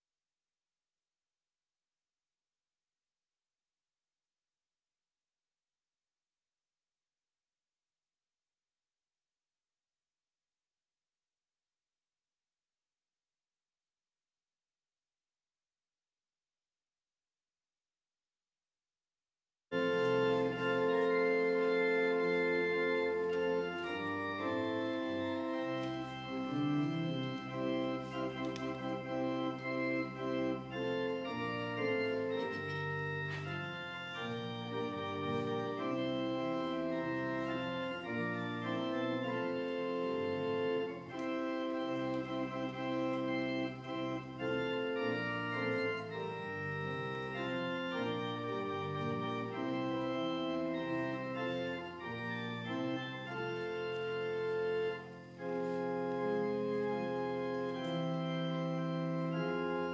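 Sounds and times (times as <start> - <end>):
church organ chords: 19.7 - 59.9.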